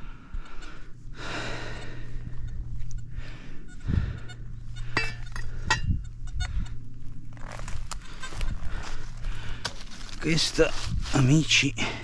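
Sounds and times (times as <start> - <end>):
low hum: 0.0 - 11.2
dry leaves rustling underfoot: 6.9 - 11.7.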